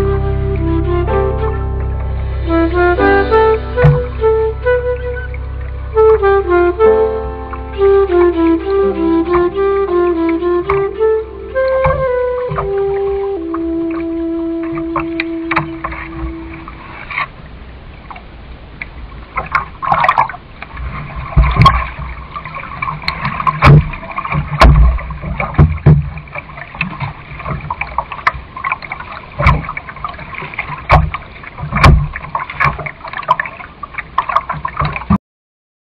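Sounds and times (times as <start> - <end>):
water splashing around hull: 0.0 - 35.2
paddle knocks on canoe: 11.8 - 12.8, 21.3 - 22.1, 23.0 - 28.4, 29.4 - 29.8, 30.4 - 33.0.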